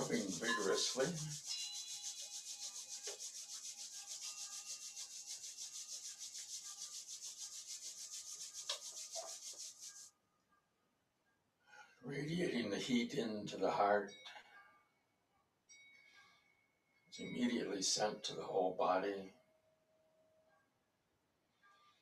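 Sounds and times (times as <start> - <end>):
palms rubbing together: 0.0 - 10.1.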